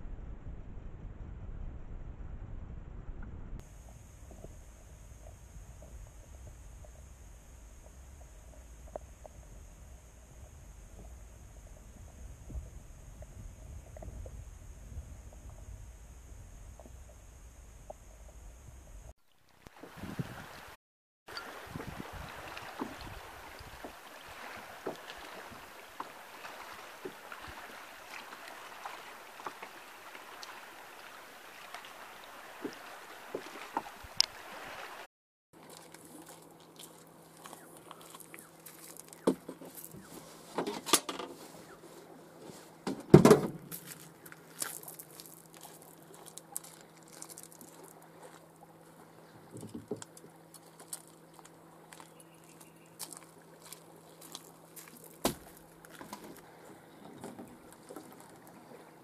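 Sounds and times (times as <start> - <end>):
steady low hum: 0.0 - 19.2, 35.6 - 40.6, 41.3 - 59.0
steady outdoor hiss: 3.6 - 59.0
paddle and rod clattering: 53.0 - 58.8.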